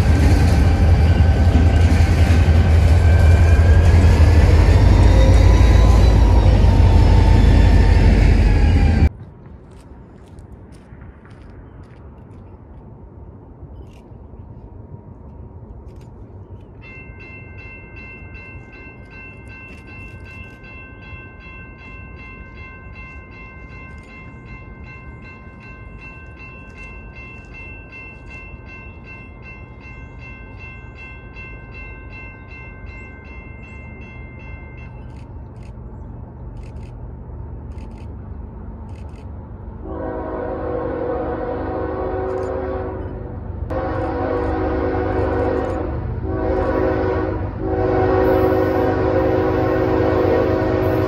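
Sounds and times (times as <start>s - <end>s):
crossing warning bell ringing: 16.6s - 35.7s.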